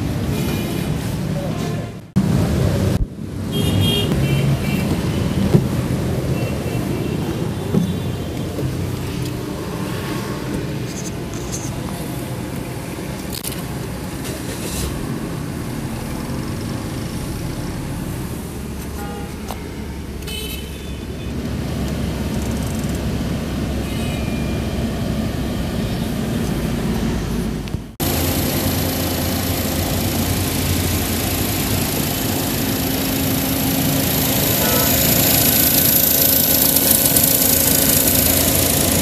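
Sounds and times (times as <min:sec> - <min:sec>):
car engine idling: 0:10.5 - 0:20.4, 0:24.5 - 0:39.0
air conditioning: 0:24.7 - 0:39.0.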